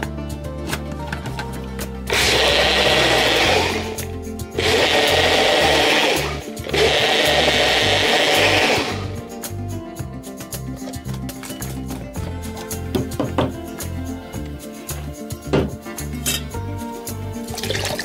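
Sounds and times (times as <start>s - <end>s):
blender running: 2.1s - 4.0s, 4.6s - 9.2s.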